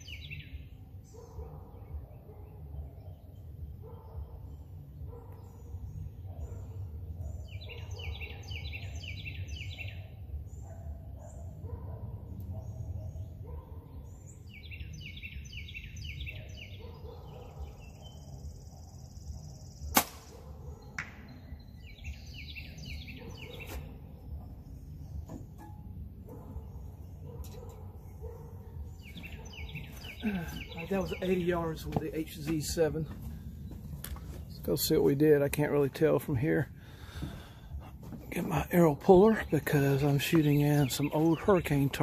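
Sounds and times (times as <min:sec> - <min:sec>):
songbirds trilling: 0:00.0 - 0:42.0
arrow hitting target: 0:19.9 - 0:20.4
bow shot crack: 0:19.9 - 0:20.4.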